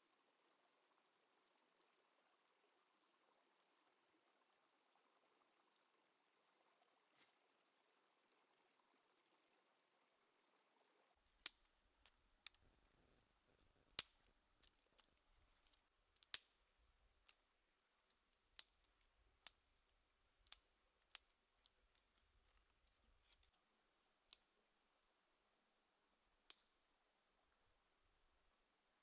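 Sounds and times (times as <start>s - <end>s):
dry twigs snapping: 11.4s - 16.6s, 18.0s - 19.6s, 20.4s - 23.6s.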